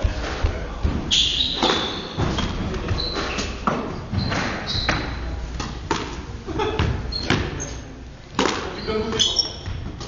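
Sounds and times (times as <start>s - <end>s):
ball hitting rackets: 0.0s - 6.2s, 8.3s - 10.0s
shoes squeaking: 1.0s - 5.5s, 6.6s - 7.9s, 8.6s - 10.0s.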